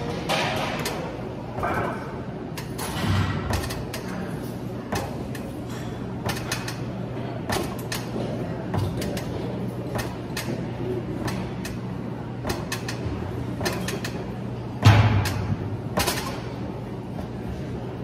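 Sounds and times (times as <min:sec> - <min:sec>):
steady low hum: 0:00.0 - 0:18.0
exercise machine creaking and clicking: 0:00.2 - 0:06.9, 0:12.4 - 0:14.3.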